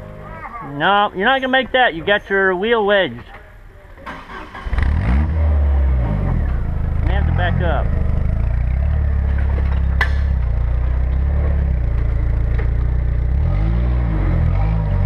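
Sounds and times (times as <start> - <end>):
off-road vehicle engine running: 4.6 - 15.0.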